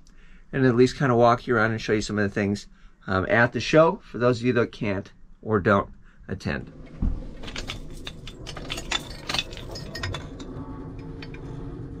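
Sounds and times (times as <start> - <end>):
faint steady hum: 0.0 - 12.0
keys jangling: 7.4 - 10.5.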